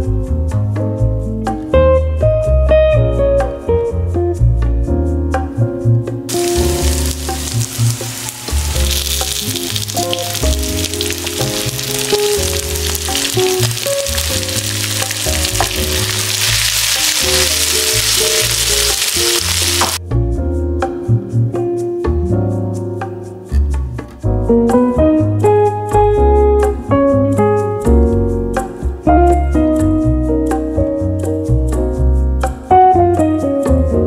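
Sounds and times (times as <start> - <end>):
background music with bass: 0.0 - 34.0
food sizzling in a pan: 6.3 - 20.0.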